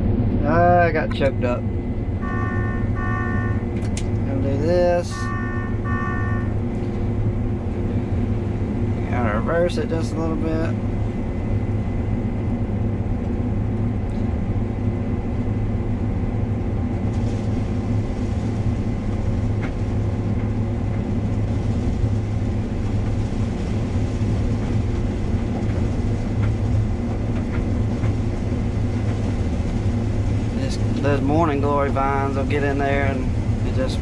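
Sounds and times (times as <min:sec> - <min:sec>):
combine harvester engine drone: 0:00.0 - 0:34.0
faint high whine: 0:00.4 - 0:12.8.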